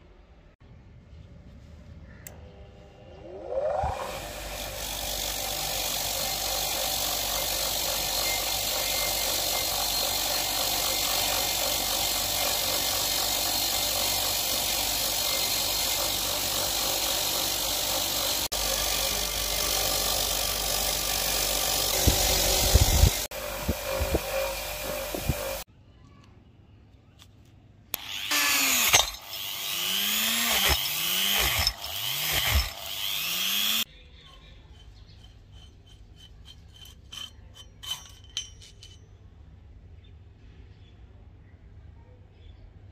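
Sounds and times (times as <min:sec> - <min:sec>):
wire wheel brushing steel: 0:03.2 - 0:25.7, 0:28.0 - 0:39.2
bench grinder motor hum: 0:03.3 - 0:25.7, 0:28.0 - 0:33.9.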